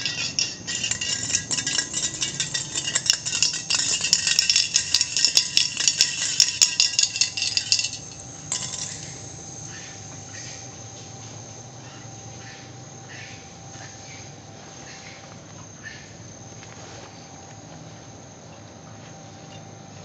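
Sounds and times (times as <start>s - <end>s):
high insect drone: 0.0s - 20.0s.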